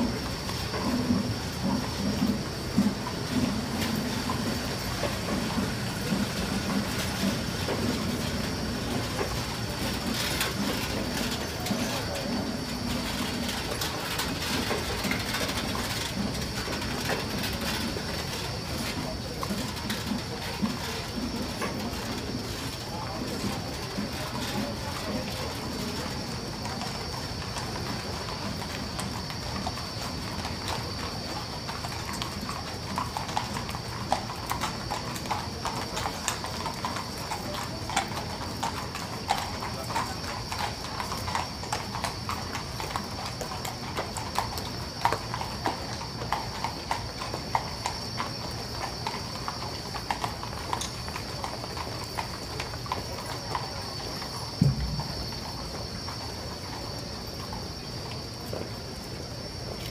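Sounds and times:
hooves clip-clopping on asphalt: 0:00.0 - 0:59.9
low thump: 0:54.6 - 0:55.2.

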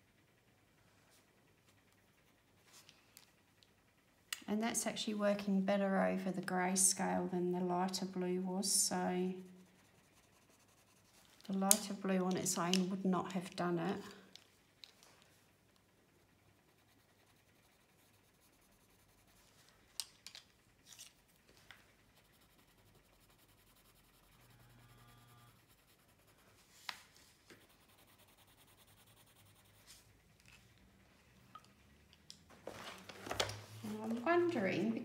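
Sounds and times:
pencil scratching on paper: 0:09.6 - 0:11.2, 0:16.7 - 0:19.5, 0:22.2 - 0:24.4, 0:25.5 - 0:26.6, 0:27.5 - 0:30.0.

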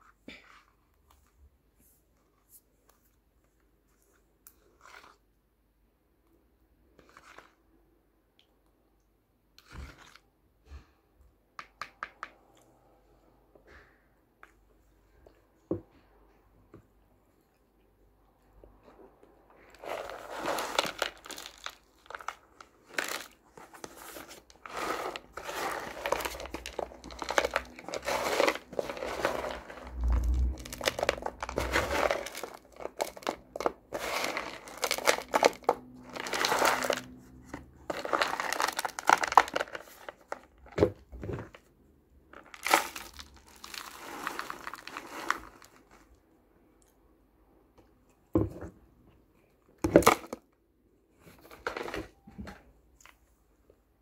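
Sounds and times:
dry clay shifting: 0:19.6 - 0:41.7, 0:42.3 - 0:46.2
plastic tub crinkling: 0:19.6 - 0:41.7, 0:42.3 - 0:46.2.

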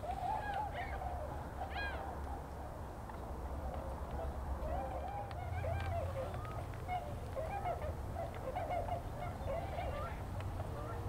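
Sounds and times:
swans calling: 0:04.6 - 0:11.0.

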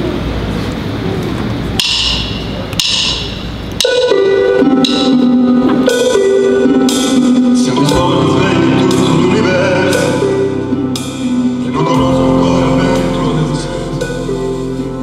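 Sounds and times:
noisy rumble: 0:00.0 - 0:15.0
sharp percussive taps: 0:01.8 - 0:04.1
keyboard chords: 0:01.8 - 0:15.0.

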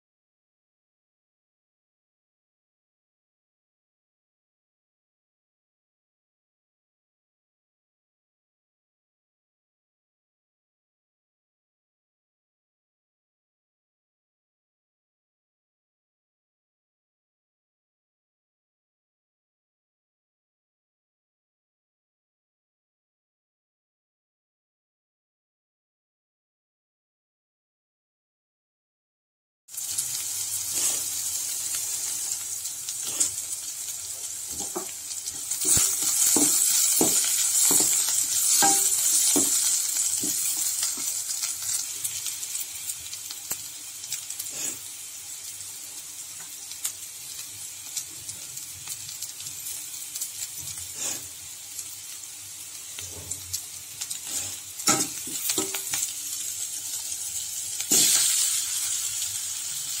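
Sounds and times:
onions sizzling in hot oil: 0:29.7 - 1:00.0
utensil scraping a pan: 0:30.7 - 0:31.2, 0:33.0 - 0:33.6, 0:34.5 - 0:41.2.

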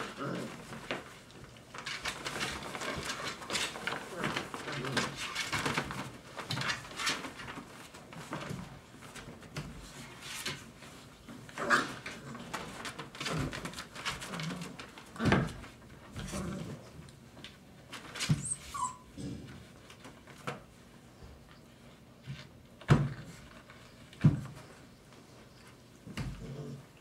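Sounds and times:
puppies scuffling: 0:00.0 - 0:27.0
puppy yips and whimpers: 0:18.3 - 0:19.2.

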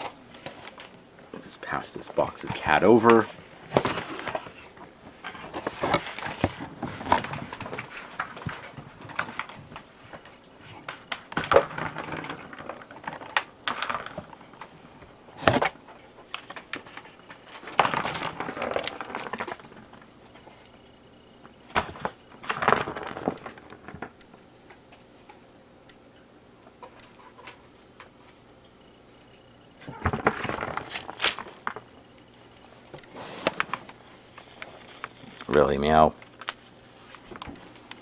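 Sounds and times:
cardboard box rustling: 0:02.2 - 0:10.3.

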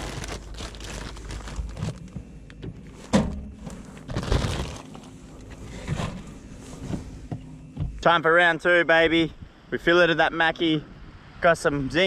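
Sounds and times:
plastic bag rustling: 0:00.0 - 0:07.2.

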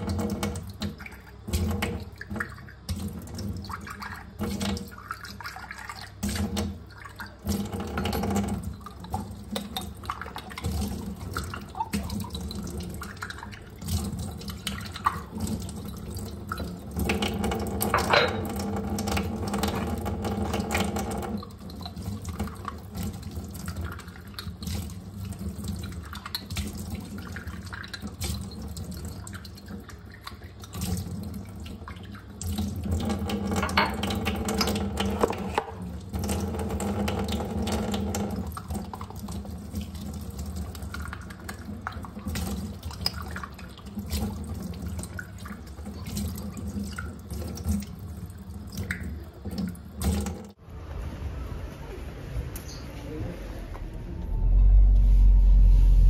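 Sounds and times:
tap running into sink: 0:13.8 - 0:23.8, 0:32.4 - 0:38.9
china knocking against sink: 0:17.2 - 0:18.7, 0:33.5 - 0:35.8.

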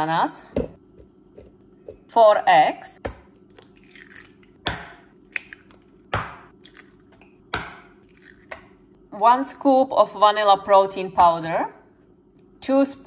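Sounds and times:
eggs cracking: 0:03.0 - 0:08.8.

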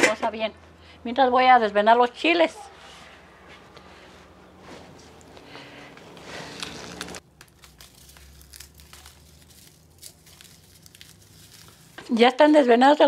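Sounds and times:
dried chile skins crackling: 0:03.7 - 0:13.0.

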